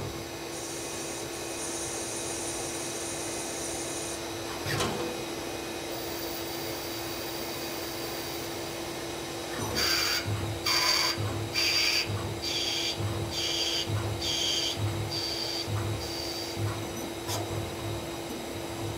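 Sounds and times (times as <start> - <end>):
regular machine pulsing: 9.7 - 18.9
lathe humming: 9.8 - 18.9.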